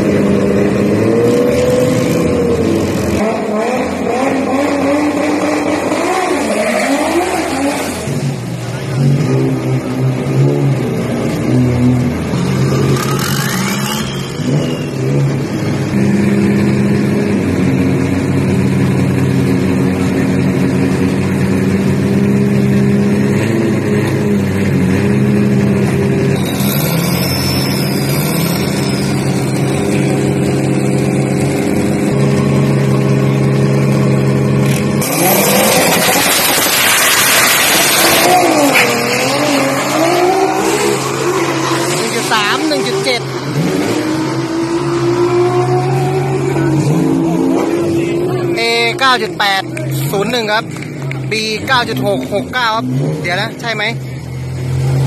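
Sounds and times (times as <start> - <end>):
pickup engine drone: 0.0 - 55.0
high engine whine: 7.3 - 55.0
engine full throttle surge: 34.5 - 48.6.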